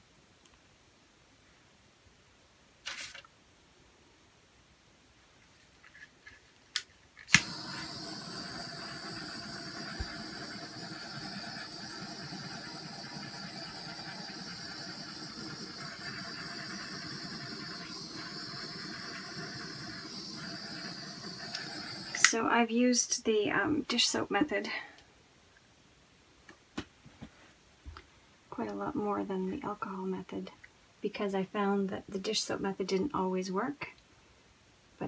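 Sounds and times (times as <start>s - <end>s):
electric fan motor whining: 7.3s - 22.3s.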